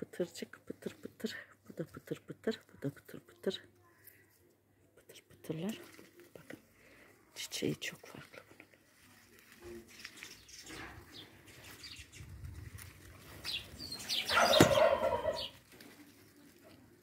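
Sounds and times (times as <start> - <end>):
leaves rustling: 5.6 - 17.0.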